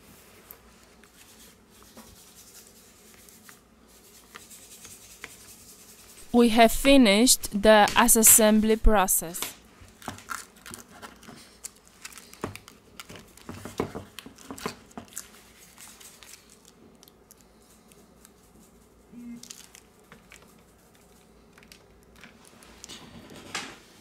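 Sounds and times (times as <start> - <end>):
plastic wrap crinkling: 9.8 - 18.4, 19.2 - 22.9.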